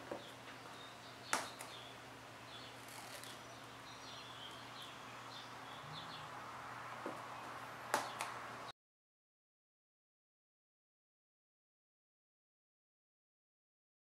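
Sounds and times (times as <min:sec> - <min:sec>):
tape crinkling and squeaking: 0:02.8 - 0:03.4.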